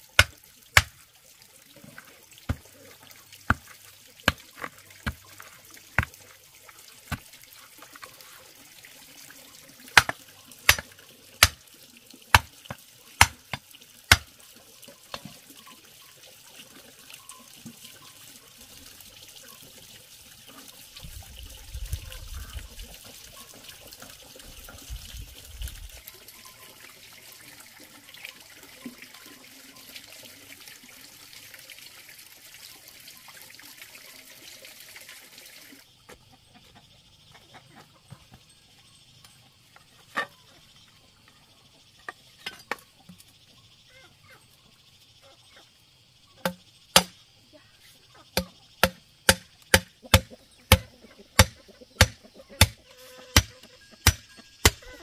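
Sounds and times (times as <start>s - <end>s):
wooden stake knocks: 0.2s - 1.0s, 3.5s - 3.7s, 4.3s - 5.4s, 6.0s - 6.2s, 13.2s - 14.3s, 46.4s - 47.1s, 48.4s - 52.8s.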